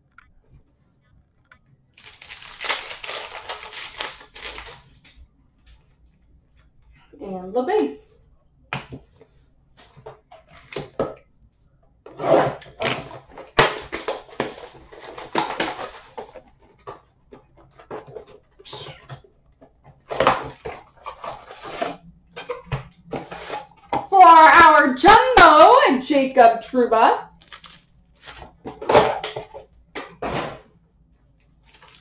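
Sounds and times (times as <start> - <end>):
cards and wrappers rustling: 2.0 - 5.2, 12.7 - 23.9, 27.3 - 29.6, 31.4 - 32.0.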